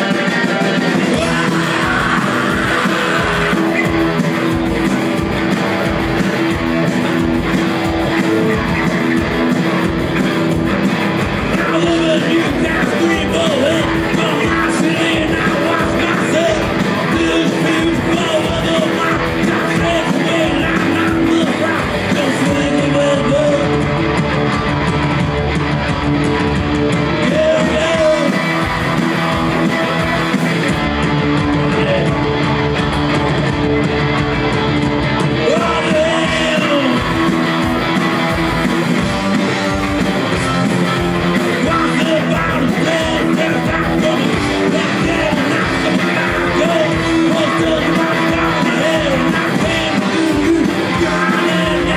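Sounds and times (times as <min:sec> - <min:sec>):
person singing: 0:00.0 - 0:04.9, 0:11.2 - 0:23.8, 0:27.0 - 0:32.4, 0:35.2 - 0:37.9, 0:39.4 - 0:51.9
punk rock band playing: 0:00.0 - 0:51.9.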